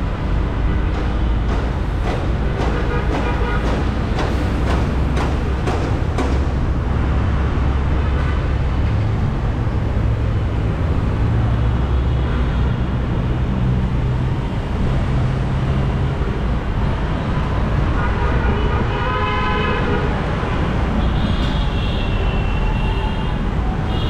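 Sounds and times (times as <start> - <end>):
vehicle engines in traffic: 0.0 - 24.0
sharp knocks or clicks: 0.6 - 7.1.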